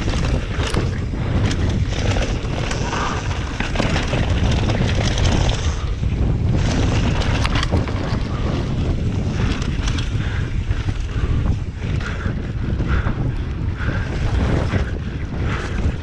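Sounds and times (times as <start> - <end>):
bike clattering over rocks: 0.0 - 5.9
bike tyre noise on dirt: 0.0 - 16.0
wind buffeting microphone: 0.0 - 16.0.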